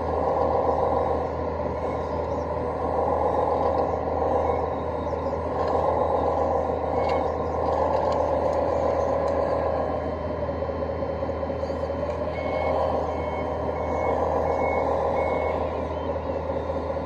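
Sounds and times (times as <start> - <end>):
toy loader motor whine: 0.0 - 17.0
reverse alarm beeps: 12.1 - 17.0.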